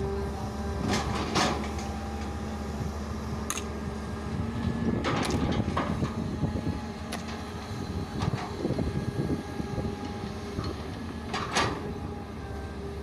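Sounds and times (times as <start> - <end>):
excavator diesel engine running: 0.0 - 13.0.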